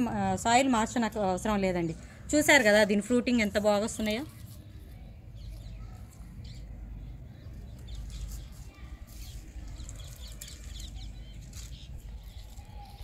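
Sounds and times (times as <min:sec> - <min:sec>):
leaves rustling: 0:03.5 - 0:06.3, 0:07.6 - 0:13.0.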